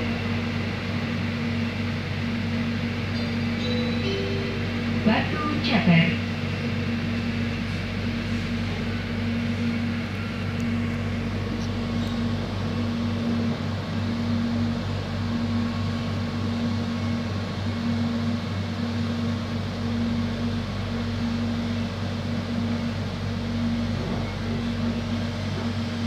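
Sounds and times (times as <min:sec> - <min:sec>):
train cabin hum and rumble: 0:00.0 - 0:26.0
higher droning tone: 0:03.1 - 0:06.9.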